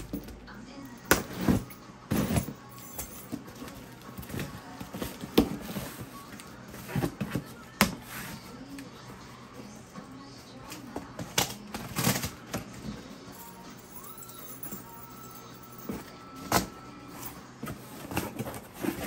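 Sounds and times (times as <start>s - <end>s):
packing tape being slit: 11.2s - 12.6s.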